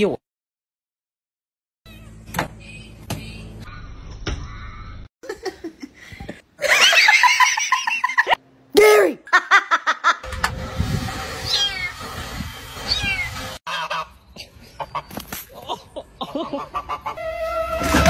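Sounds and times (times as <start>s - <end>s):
person laughing hard: 9.3s - 10.2s.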